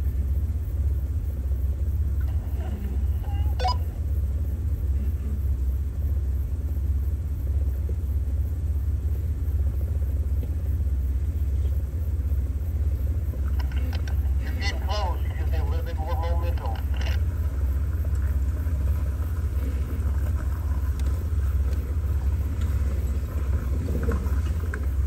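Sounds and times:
car engine idling: 0:00.0 - 0:25.0.

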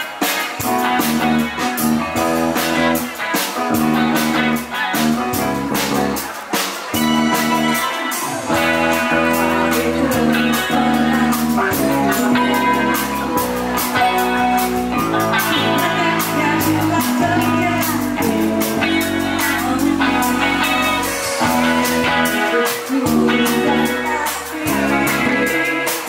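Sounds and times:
bass guitar: 0:00.0 - 0:26.0
electric guitar: 0:00.0 - 0:26.0
keyboard: 0:00.0 - 0:26.0
steady drum beat: 0:00.0 - 0:26.0
woman singing: 0:08.1 - 0:14.2, 0:15.2 - 0:26.0.

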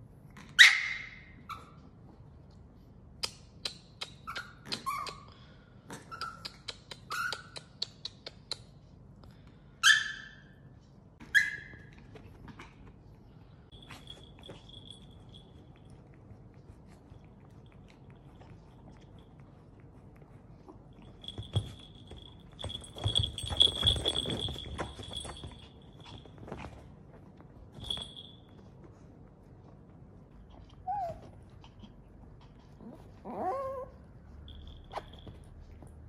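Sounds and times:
pet squeaking and chirping: 0:06.0 - 0:08.2.

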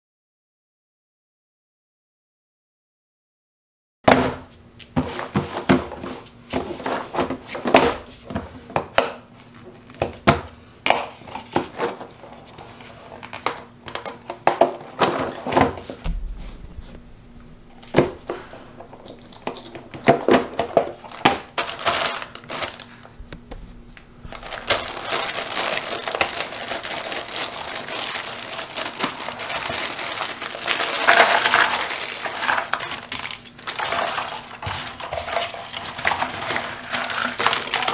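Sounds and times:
plastic wrapping crinkling: 0:11.4 - 0:37.9.

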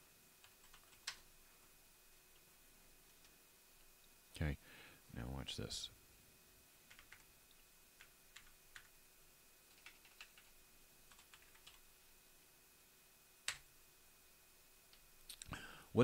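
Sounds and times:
faint steady hum: 0:00.0 - 0:16.0
computer keyboard typing: 0:00.4 - 0:01.3, 0:06.8 - 0:07.3, 0:08.0 - 0:08.9, 0:09.7 - 0:11.8, 0:13.5 - 0:13.7.

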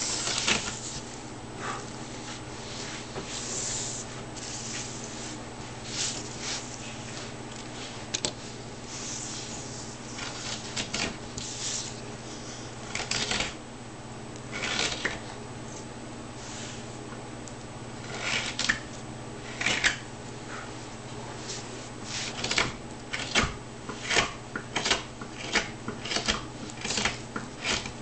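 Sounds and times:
steady low hum: 0:00.0 - 0:28.0
knife scraping wood: 0:08.2 - 0:13.5, 0:22.1 - 0:28.0.

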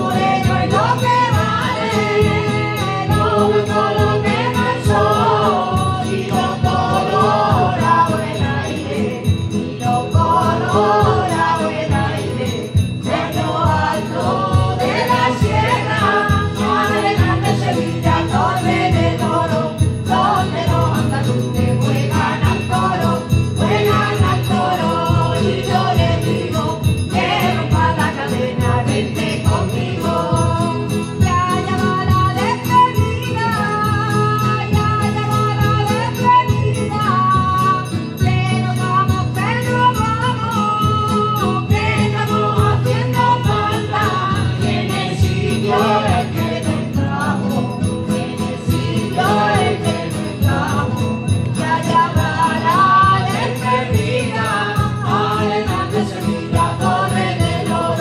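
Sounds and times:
group of voices singing: 0:00.0 - 0:58.0
strummed guitars: 0:00.0 - 0:58.0.

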